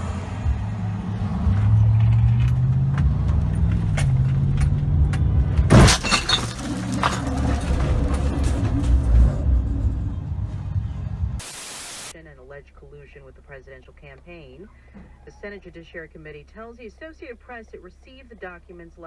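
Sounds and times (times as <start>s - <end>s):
engine and road noise: 0.0s - 19.0s
car crash impact: 5.6s - 9.4s
debris clattering: 5.7s - 10.0s
burst of hiss: 11.4s - 12.1s.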